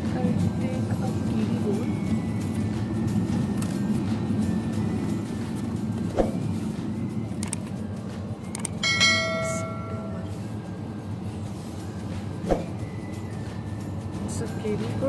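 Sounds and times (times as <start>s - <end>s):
low hum: 0.0s - 15.0s
bell-like chime: 8.8s - 10.4s.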